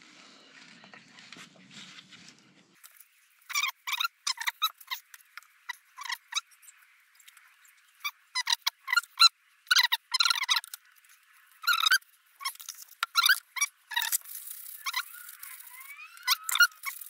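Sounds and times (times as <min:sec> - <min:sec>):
metal wheel hub squeaking: 0:11.6 - 0:17.0.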